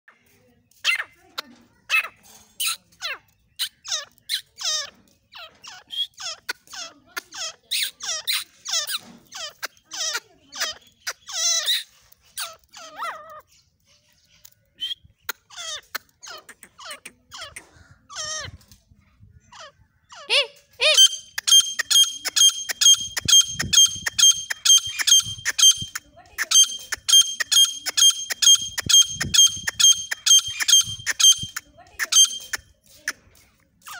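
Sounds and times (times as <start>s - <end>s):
bird squeaky calls: 0.7s - 18.7s, 19.4s - 33.2s
bird ringing notes: 20.9s - 32.6s.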